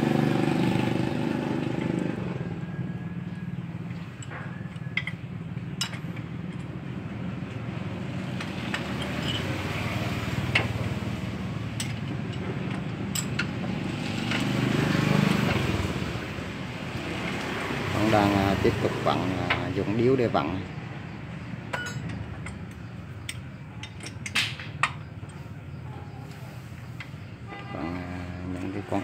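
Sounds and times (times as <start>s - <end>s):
wrench clicking on bolts: 3.9s - 6.8s, 11.8s - 14.5s, 21.7s - 25.4s.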